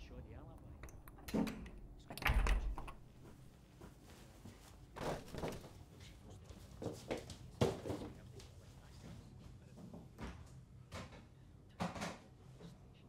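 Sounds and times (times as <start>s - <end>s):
soft footsteps on floor: 3.1s - 10.5s.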